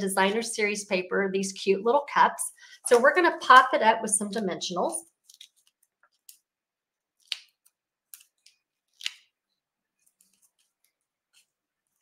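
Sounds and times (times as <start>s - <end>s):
paper crackling: 4.8s - 6.5s.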